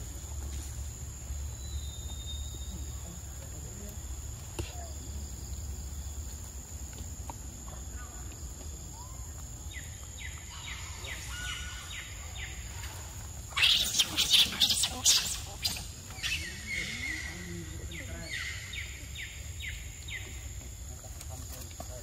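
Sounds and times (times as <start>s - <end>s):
bird chirping: 1.3s - 3.4s.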